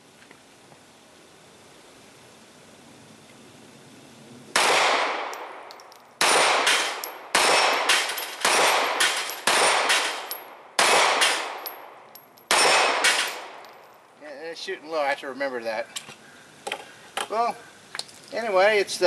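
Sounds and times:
pistol shots: 4.6 - 13.6
steel plate target clanging: 5.3 - 10.5, 11.2 - 14.1.

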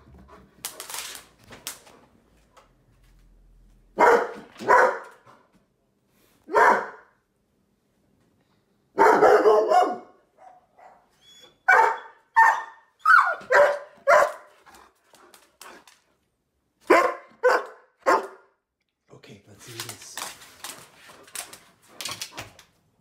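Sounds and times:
dog barking: 4.0 - 5.2, 6.5 - 7.2, 9.0 - 11.1, 11.7 - 14.5, 16.8 - 18.6.

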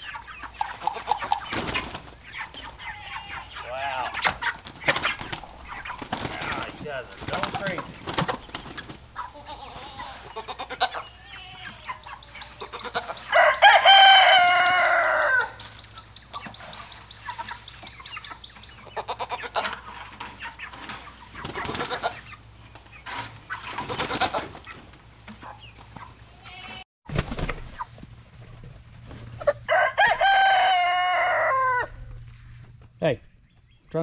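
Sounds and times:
chickens clucking: 0.0 - 26.8, 27.7 - 34.0
rooster crowing: 10.9 - 15.6, 29.7 - 32.1.

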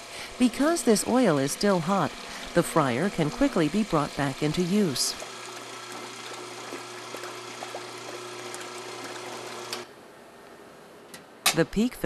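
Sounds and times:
electric pump humming: 0.0 - 9.9
hot oil pouring and splashing: 2.1 - 9.8.

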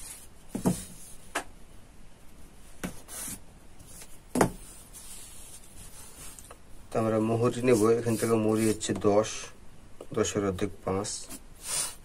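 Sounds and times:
chalk scraping on fabric: 7.4 - 8.9, 11.3 - 12.0.

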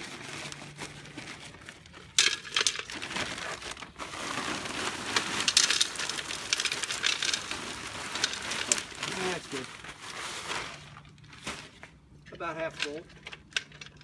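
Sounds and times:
rocks poured into clay pot: 0.0 - 10.0.

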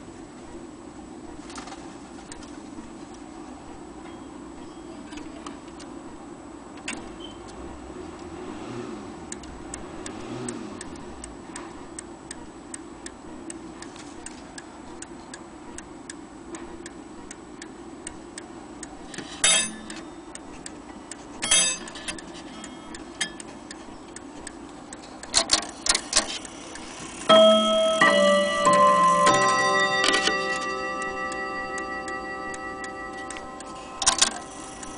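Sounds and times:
clock ticking: 2.3 - 3.0, 4.6 - 34.9
clock chime ringing: 27.3 - 34.9.

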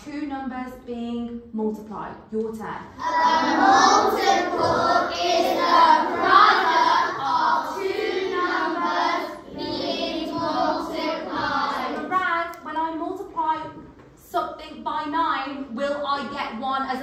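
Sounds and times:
children speaking in unison: 2.9 - 12.6.

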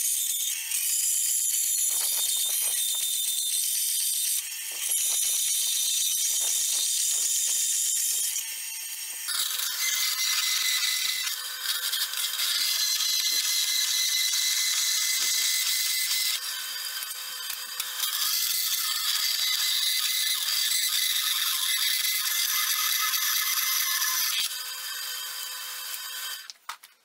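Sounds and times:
bandsaw blade grinding through steel: 9.2 - 26.0.

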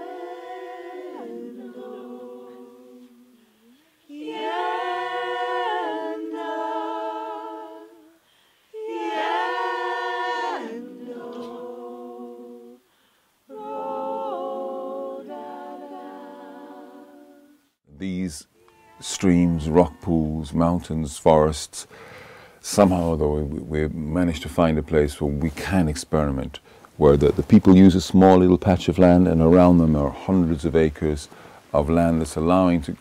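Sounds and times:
women singing in harmony: 0.0 - 12.9, 13.5 - 17.7.

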